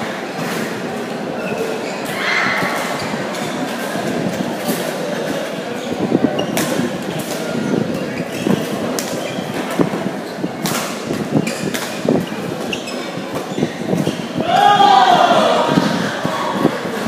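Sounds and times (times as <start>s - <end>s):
murmur of voices: 0.0s - 17.0s
shoes squeaking on court: 0.4s - 14.4s
rackets hitting shuttlecock: 10.6s - 14.2s.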